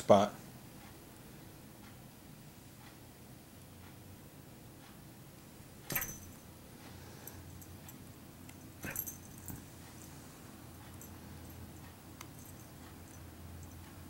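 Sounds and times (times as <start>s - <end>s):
metal collar tag jingling: 5.9s - 6.5s, 7.2s - 13.9s.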